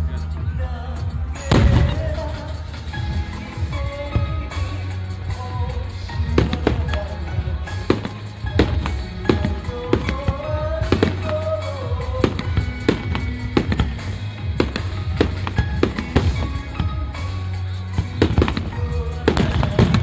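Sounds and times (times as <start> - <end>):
music playing: 0.0 - 20.0
firework shells bursting: 6.4 - 20.0.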